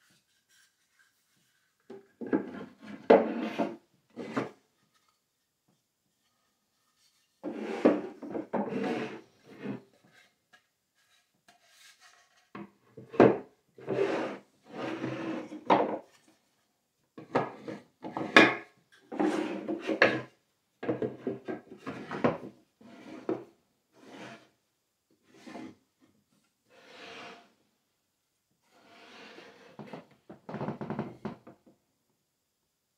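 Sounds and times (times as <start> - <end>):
wooden drawers scraping: 2.2 - 4.6, 7.4 - 9.8, 13.2 - 16.0.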